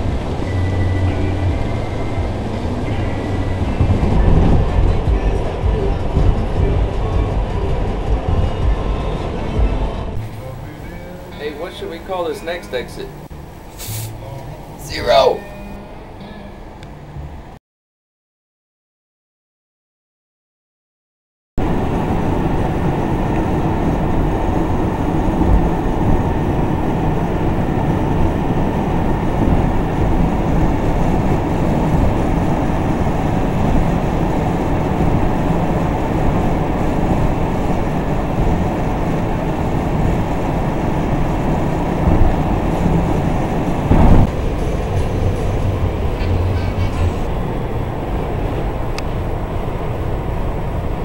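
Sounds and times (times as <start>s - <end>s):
road and engine rumble: 0.0s - 17.6s, 21.6s - 51.0s
vehicle bump: 3.6s - 11.8s, 42.0s - 47.4s.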